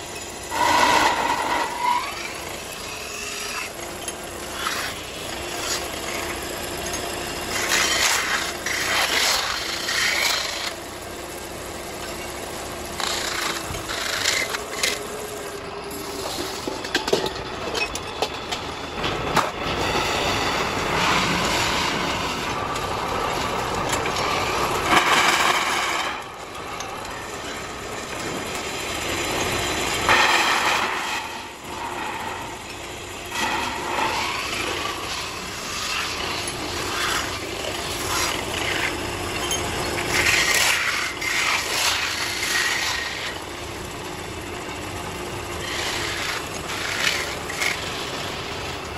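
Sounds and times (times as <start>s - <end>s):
lathe running: 0.0s - 16.7s, 18.3s - 48.8s
bar rasping against spinning metal: 0.4s - 3.8s.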